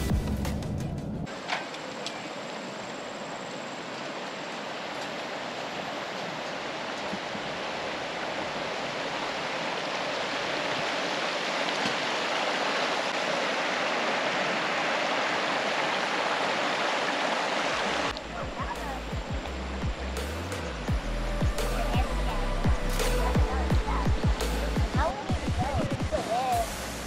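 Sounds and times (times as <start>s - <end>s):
stream flowing: 1.3s - 27.0s.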